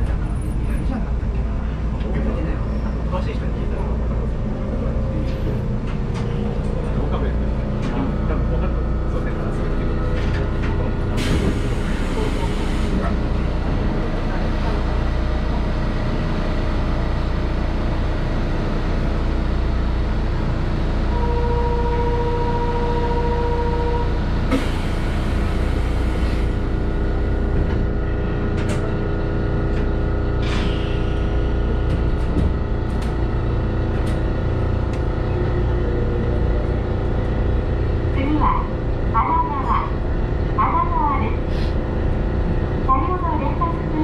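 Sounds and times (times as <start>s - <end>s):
train equipment humming: 0.0s - 44.0s
train clicks: 31.8s - 33.2s.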